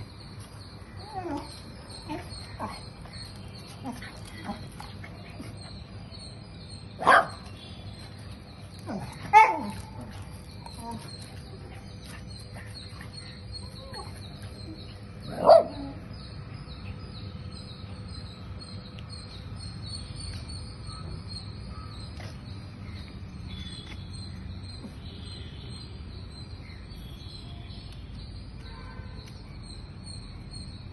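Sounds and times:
dog barking: 7.0s - 7.4s, 15.4s - 15.9s.

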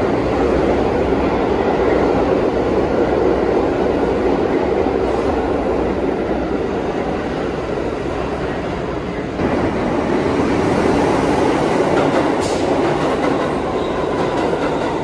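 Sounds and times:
subway train wheels rumbling: 0.0s - 15.0s.

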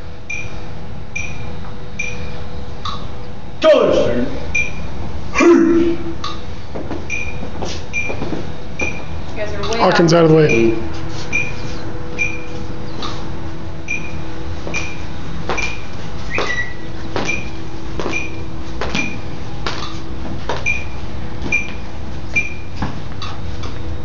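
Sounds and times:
steady hum: 0.0s - 24.0s
marching footsteps on concrete: 6.6s - 9.7s, 14.0s - 23.9s.

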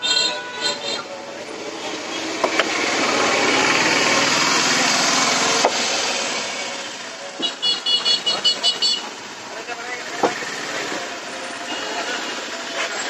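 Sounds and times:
vehicle engine passing: 1.0s - 7.4s.

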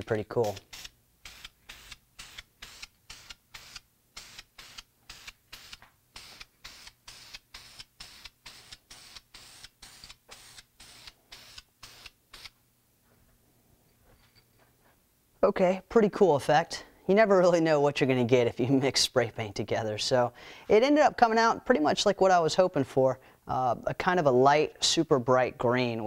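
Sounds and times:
spray paint can hissing in bursts: 0.4s - 12.6s.

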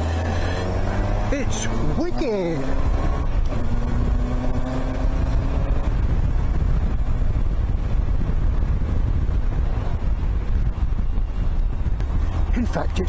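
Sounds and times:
motorcycle engine running: 0.0s - 13.0s
wind rush on microphone: 0.0s - 13.0s.

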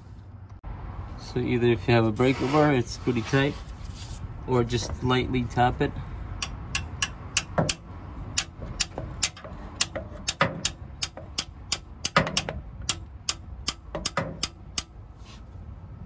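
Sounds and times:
heavier metal knocks: 6.4s - 14.7s
ratchet clicking: 6.4s - 15.0s.

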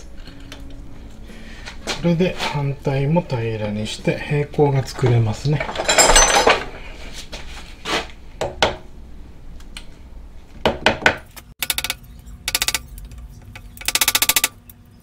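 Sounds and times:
fast rattling clicks: 11.6s - 14.8s.

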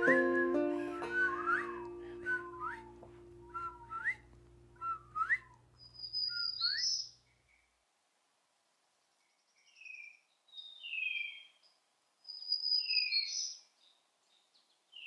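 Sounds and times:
acoustic folk song chord: 0.0s - 4.1s
whistled bird-call imitations: 4.8s - 7.7s, 12.3s - 13.7s.

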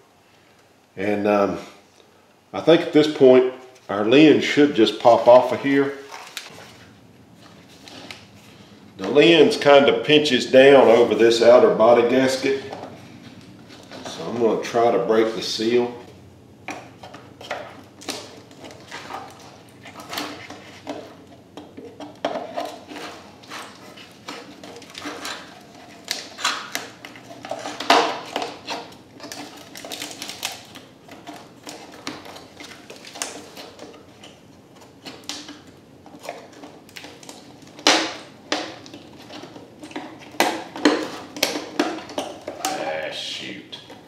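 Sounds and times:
loud plastic cracks: 24.2s - 42.9s.

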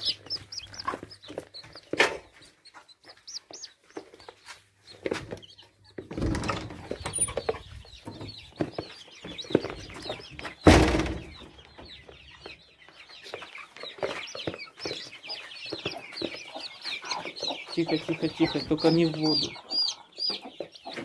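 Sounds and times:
chicks peeping: 0.0s - 21.0s
hens clucking: 0.0s - 21.0s
loud thump: 10.6s - 11.4s.

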